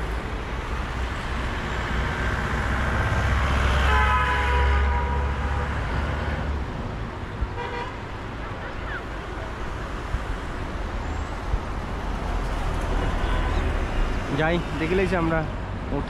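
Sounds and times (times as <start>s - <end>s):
vehicle horn: 3.7s - 5.8s, 7.6s - 8.0s, 13.0s - 13.7s.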